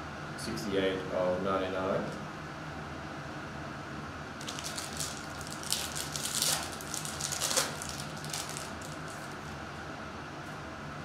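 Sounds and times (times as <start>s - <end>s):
steady low hum: 0.0s - 11.0s
foil wrapper tearing and crinkling: 4.4s - 9.4s.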